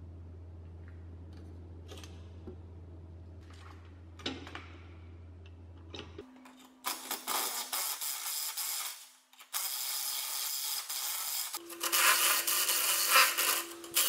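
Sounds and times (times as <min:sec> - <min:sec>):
steady low hum: 0:00.0 - 0:06.9.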